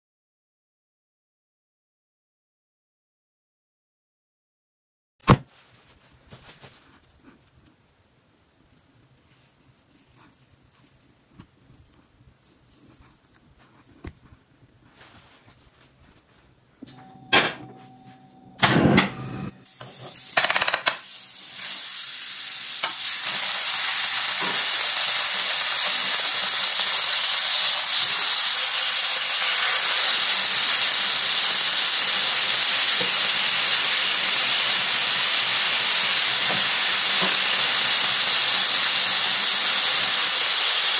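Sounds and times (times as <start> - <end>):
faint high whine: 5.6 - 21.8
meat sizzling in a frying pan: 19.7 - 40.9.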